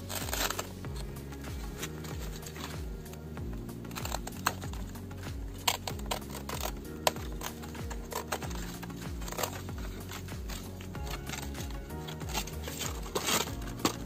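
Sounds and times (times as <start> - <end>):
background music: 0.0 - 14.0
blade cutting dry fibres: 0.0 - 14.0.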